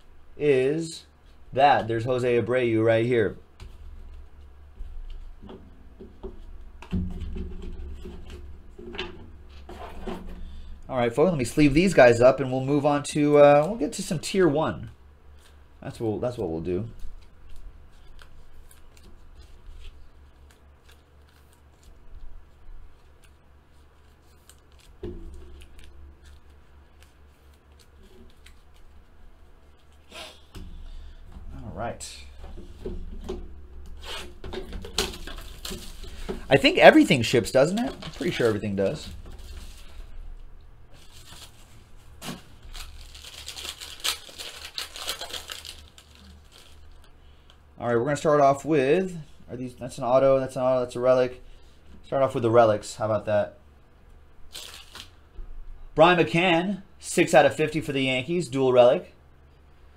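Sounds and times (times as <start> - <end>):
steady low hum: 0.0 - 59.9
plastic sleeves scraping and rustling: 7.2 - 12.4, 16.9 - 30.2, 32.3 - 40.2, 40.9 - 47.2, 54.5 - 55.2
foil wrapper crinkling: 17.1 - 29.1, 34.8 - 40.1, 40.9 - 47.6, 54.5 - 55.2.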